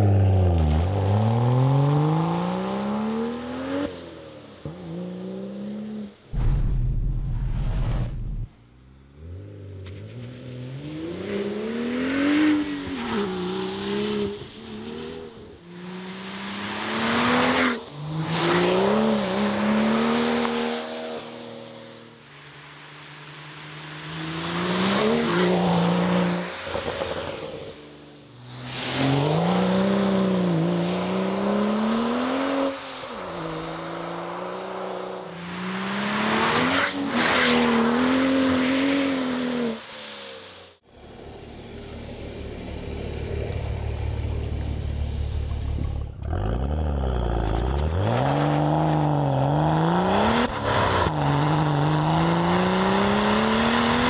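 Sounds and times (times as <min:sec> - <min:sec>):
car accelerating hard: 0:45.6 - 0:54.0.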